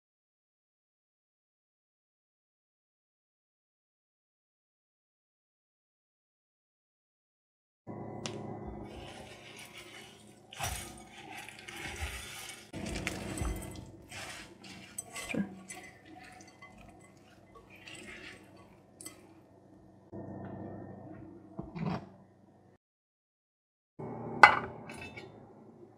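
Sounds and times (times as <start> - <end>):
spatula stirring wet food: 8.8 - 19.5
spatula clinking on glass bowl: 8.9 - 19.4.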